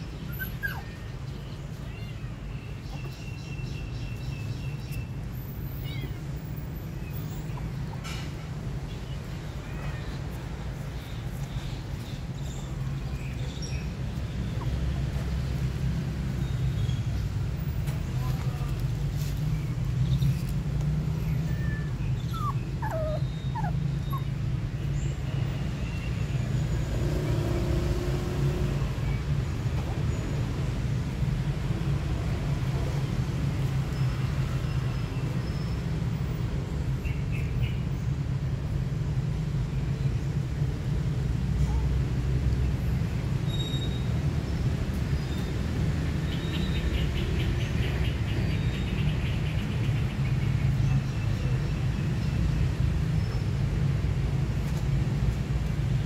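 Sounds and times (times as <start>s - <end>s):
puppy whimpering: 0.2s - 1.1s, 21.4s - 24.4s.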